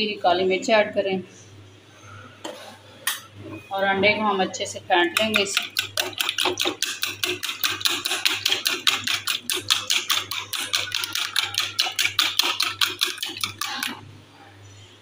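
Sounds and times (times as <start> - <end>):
whisk clicking against bowl: 5.0 - 14.0.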